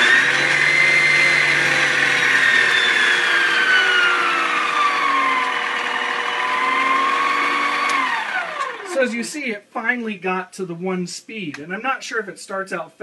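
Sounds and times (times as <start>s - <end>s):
stand mixer motor whining: 0.0s - 9.0s.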